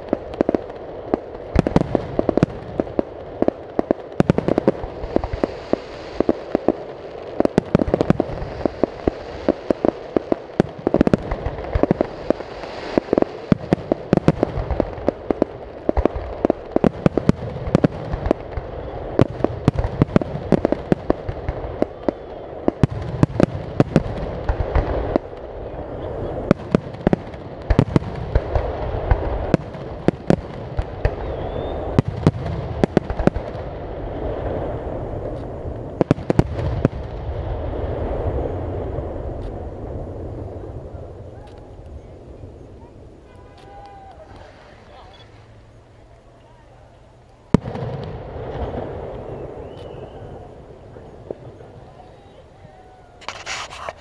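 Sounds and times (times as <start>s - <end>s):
firework shells bursting: 53.1s - 54.0s.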